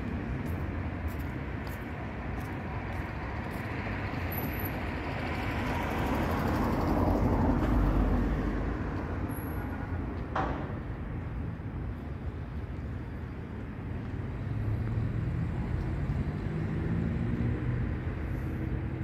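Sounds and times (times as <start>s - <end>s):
vehicle passing by: 14.3s - 19.0s.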